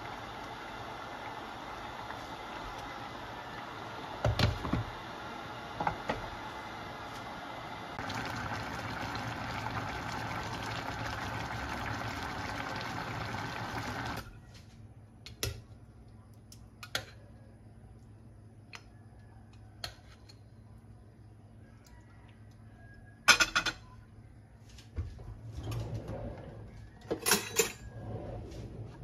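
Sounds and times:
stew bubbling in a pan: 0.0s - 14.3s.

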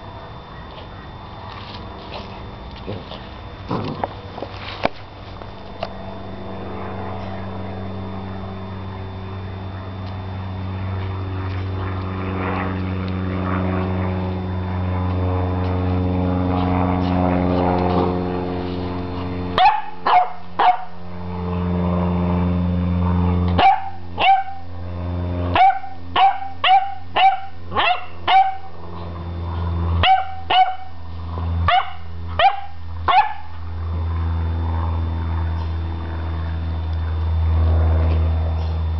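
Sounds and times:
low motor hum: 0.0s - 38.9s
puppy barking: 19.6s - 21.0s, 23.6s - 24.6s, 25.5s - 28.7s, 30.0s - 31.0s, 31.7s - 33.6s.

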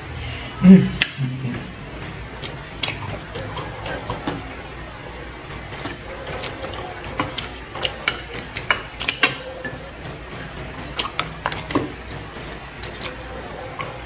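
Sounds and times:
person chewing: 2.4s - 4.6s, 10.8s - 12.0s
cutlery clinking in plastic containers: 5.7s - 9.9s.

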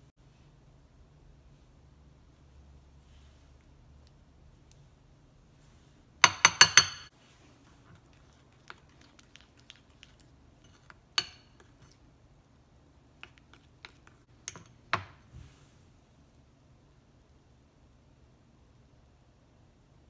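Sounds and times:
metal clinking on glass bowl: 6.2s - 7.1s
spoon scraping and stirring: 6.2s - 12.1s, 12.8s - 15.2s.

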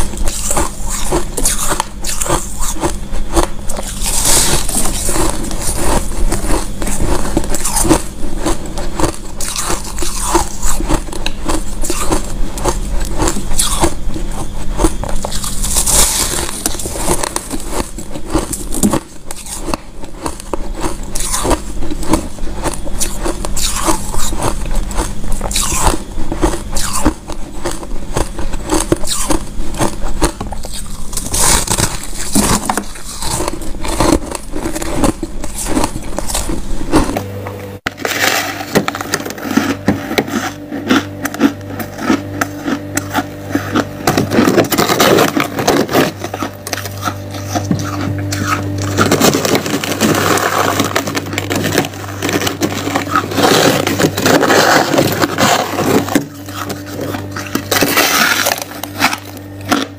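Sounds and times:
frost being chewed: 0.0s - 37.3s, 37.9s - 59.9s
frost being scraped: 11.6s - 19.8s, 38.0s - 41.2s, 41.8s - 59.9s.

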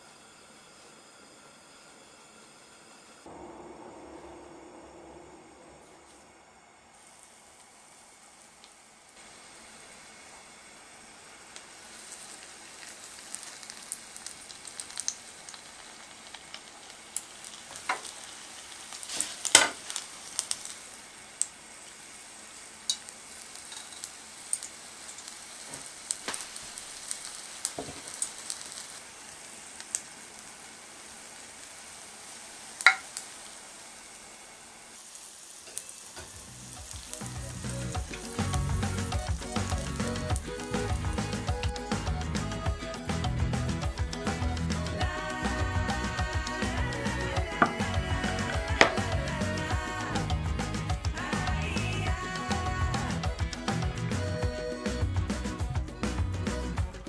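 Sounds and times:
food sizzling in hot oil: 5.8s - 55.0s
oil crackling and popping: 7.0s - 45.2s, 46.2s - 51.1s.

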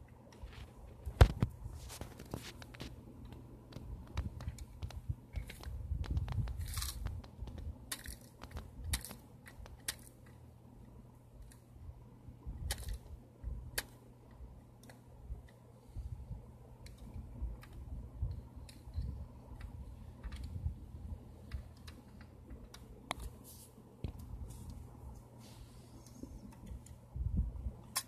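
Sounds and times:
plastic toy clicks and rattles: 4.0s - 10.4s, 12.6s - 13.1s.

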